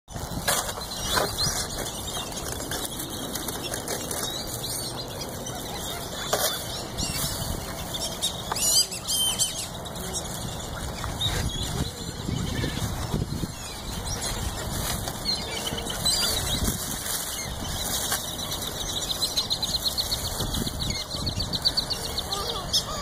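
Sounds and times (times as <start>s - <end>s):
feathers rustling and flapping: 0.1s - 8.4s, 9.8s - 22.5s
squeaky bird calls: 4.1s - 14.6s.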